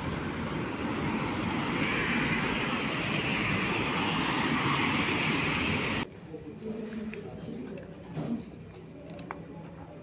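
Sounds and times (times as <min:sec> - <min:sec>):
street traffic hiss: 0:00.0 - 0:06.1.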